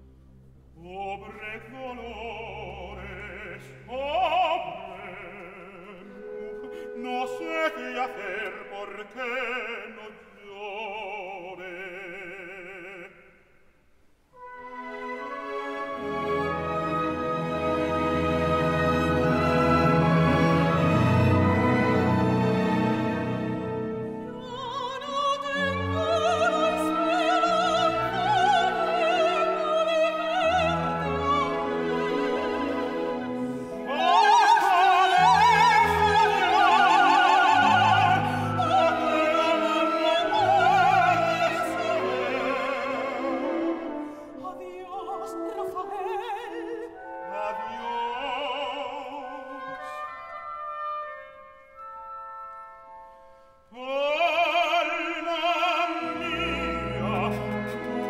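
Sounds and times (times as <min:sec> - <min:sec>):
soprano singing with vibrato: 0:00.8 - 0:13.2, 0:14.9 - 0:50.8, 0:53.7 - 0:58.0
orchestra with strings: 0:14.3 - 0:53.0, 0:53.8 - 0:58.0.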